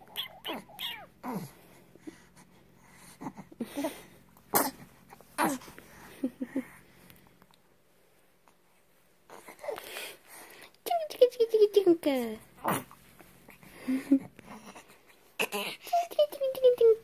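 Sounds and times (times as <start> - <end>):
baby cooing and squealing: 0.0 - 1.5, 15.4 - 16.2.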